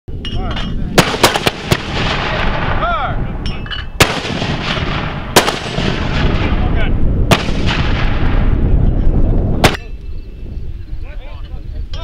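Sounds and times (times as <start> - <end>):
steady low rumble: 0.1 - 12.0
mortar tubes firing: 0.7 - 2.8, 4.0 - 8.6, 9.6 - 9.9.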